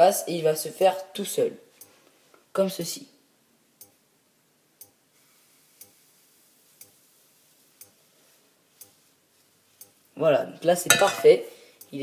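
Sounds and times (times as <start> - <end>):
faint regular ticking: 1.7 - 2.5, 3.7 - 10.2, 11.4 - 12.0.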